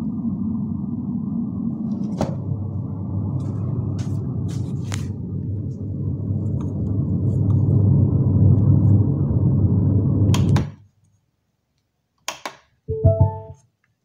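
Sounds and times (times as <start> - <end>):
subwoofer low rumble: 2.4 - 10.3
rising beep: 12.9 - 13.6.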